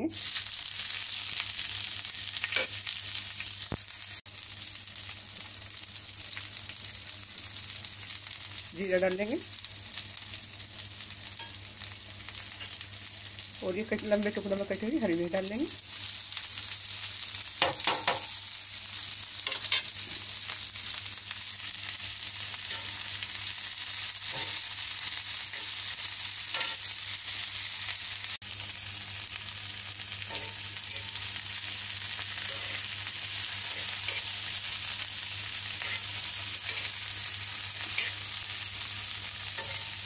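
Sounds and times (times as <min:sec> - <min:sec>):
vegetables sizzling in hot oil: 0:00.0 - 0:40.0
metal spoon scraping griddle: 0:30.3 - 0:31.2, 0:35.8 - 0:37.0, 0:37.8 - 0:38.2, 0:39.6 - 0:40.0.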